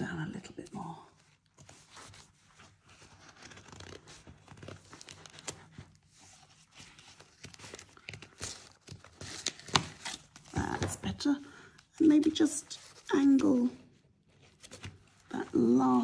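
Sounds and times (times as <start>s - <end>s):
paper crunching and crinkling: 1.2s - 10.9s.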